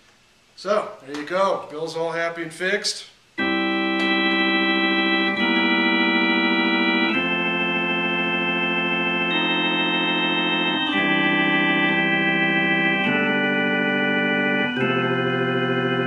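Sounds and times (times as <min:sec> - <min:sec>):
organ playing sustained chords: 0:03.4 - 0:16.0.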